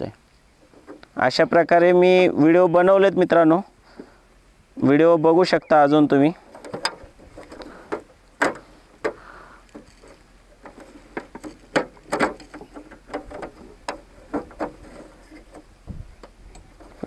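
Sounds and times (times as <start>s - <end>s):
hard plastic parts clicking: 6.5s - 17.0s.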